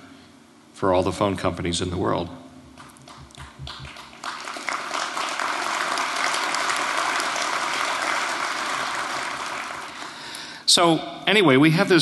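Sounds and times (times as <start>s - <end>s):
audience applauding: 2.8s - 10.4s.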